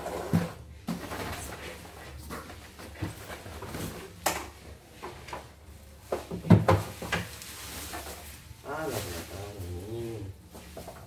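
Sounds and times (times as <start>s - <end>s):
plastic parts rustling: 6.0s - 9.6s.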